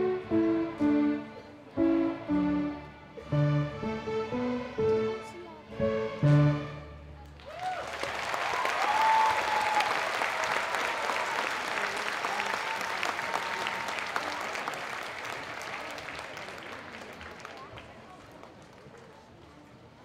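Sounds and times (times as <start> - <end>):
audience applause: 7.3 - 19.3.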